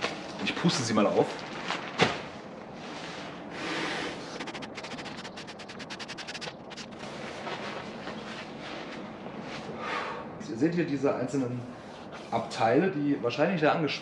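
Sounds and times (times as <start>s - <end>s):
fabric rustling and crinkling: 1.1s - 3.4s, 6.9s - 9.7s.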